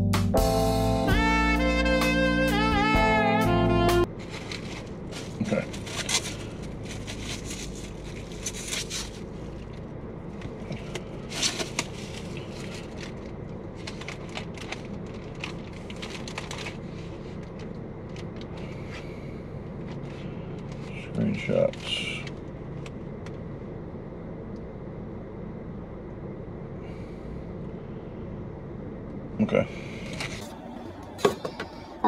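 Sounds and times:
steady low hum: 0.0 - 32.0
paper wrappers rustling: 4.1 - 9.8, 10.4 - 18.8.

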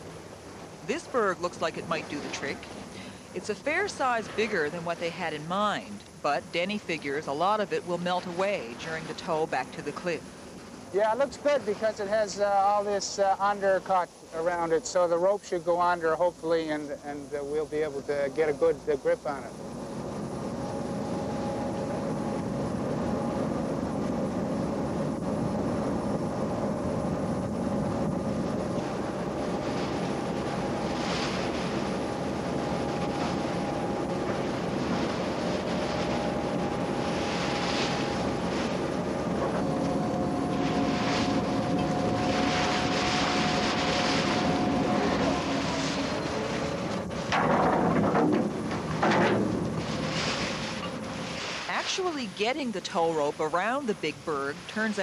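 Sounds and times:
tugboat engine droning: 0.0 - 16.6, 18.3 - 55.0
rushing noise: 24.1 - 47.6.

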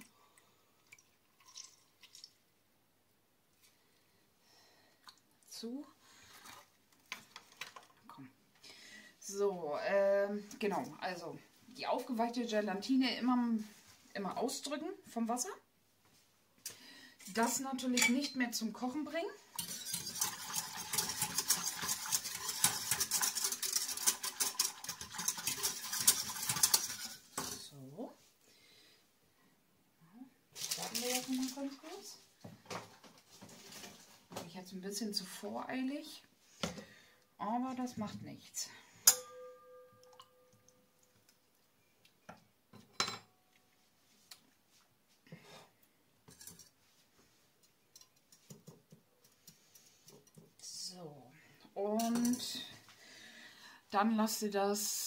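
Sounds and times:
whisk clicking in metal pot: 19.6 - 27.6
metal pot ringing: 39.0 - 40.8.

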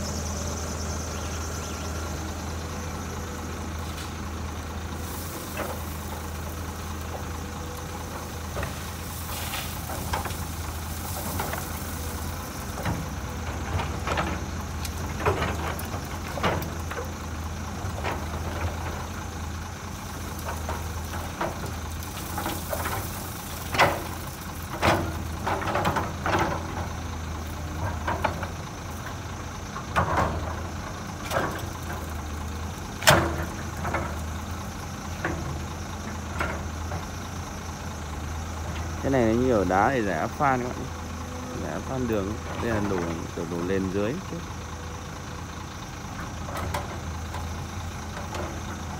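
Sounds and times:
excavator diesel engine running: 0.0 - 48.9
stones clanking into truck bed: 8.1 - 17.2, 20.1 - 27.0, 32.9 - 34.4.

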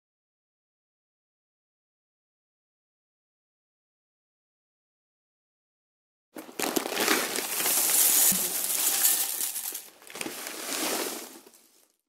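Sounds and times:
dried beans pouring and rattling: 6.4 - 11.9.

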